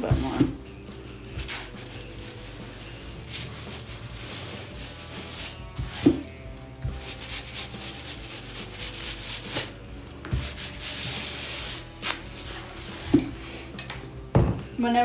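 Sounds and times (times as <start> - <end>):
iron rubbing over ribbon: 1.3 - 6.2, 6.8 - 9.8, 10.4 - 13.3.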